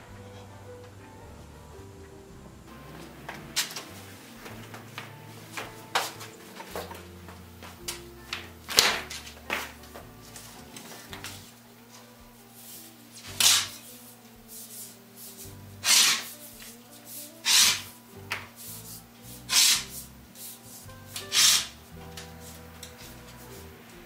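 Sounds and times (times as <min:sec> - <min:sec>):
soft background music: 0:00.0 - 0:24.0
rubber rubbing and sliding: 0:12.7 - 0:18.0, 0:18.6 - 0:23.8.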